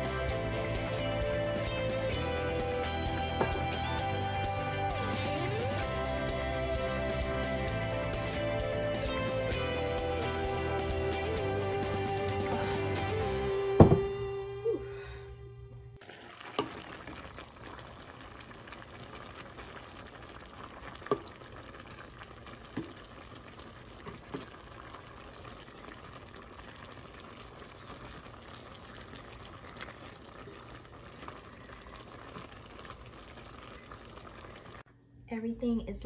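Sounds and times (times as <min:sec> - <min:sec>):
stew bubbling in pot: 0:00.0 - 0:06.2, 0:16.0 - 0:34.9.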